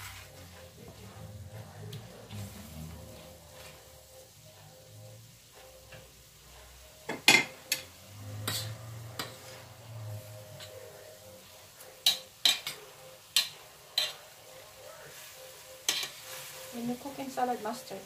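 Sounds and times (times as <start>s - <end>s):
utensil scraping a steel skillet: 7.4s - 9.8s, 12.0s - 14.3s, 15.1s - 17.1s.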